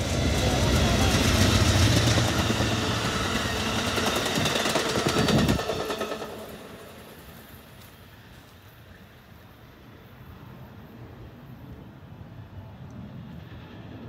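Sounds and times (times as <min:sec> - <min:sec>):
train wheels clicking on rails: 0:00.0 - 0:09.4
diesel locomotive engine: 0:00.0 - 0:14.0.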